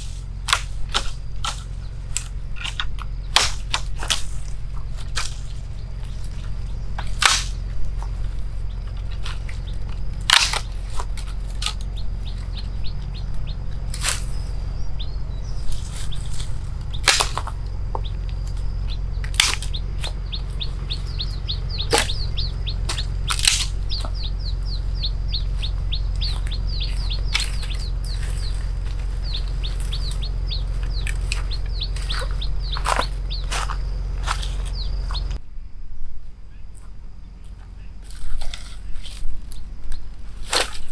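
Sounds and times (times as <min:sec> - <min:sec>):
sticks snapping: 0:00.4 - 0:08.2, 0:08.9 - 0:14.3, 0:15.7 - 0:24.3, 0:25.3 - 0:35.4, 0:38.1 - 0:40.9.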